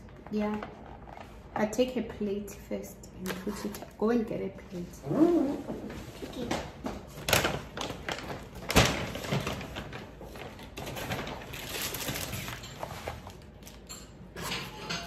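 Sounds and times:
paper bag rustling: 0:05.4 - 0:13.9.

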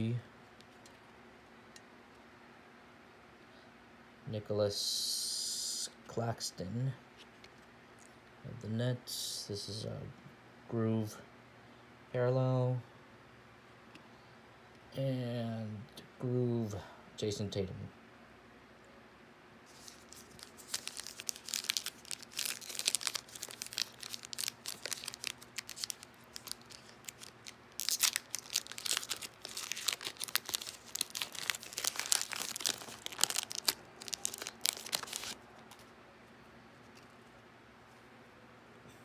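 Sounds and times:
foil wrapper tearing and crinkling: 0:19.7 - 0:35.8.

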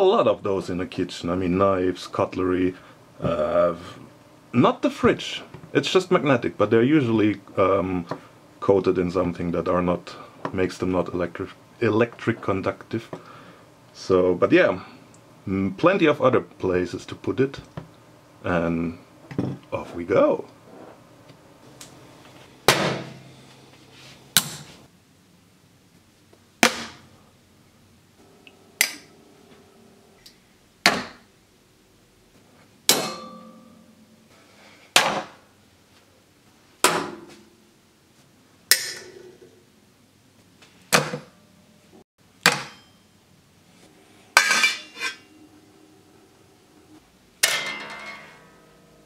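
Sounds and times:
timer smacking metal surfaces: 0:32.9 - 0:35.4, 0:47.4 - 0:49.0.

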